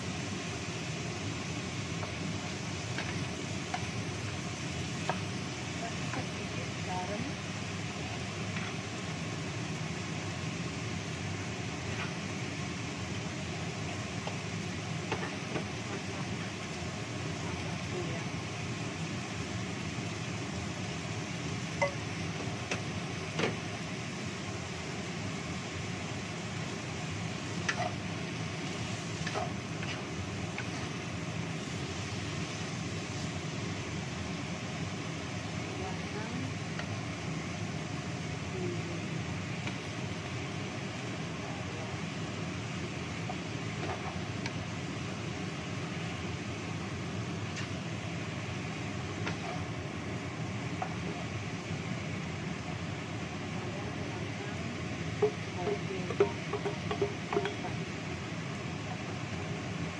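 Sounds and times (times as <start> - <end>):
vegetables sizzling in a wok: 0.0 - 59.9
spatula tapping pan: 2.9 - 4.0, 5.0 - 5.3, 21.8 - 23.6, 27.6 - 28.0, 55.1 - 57.9
wooden spatula knocking pan: 55.1 - 57.9.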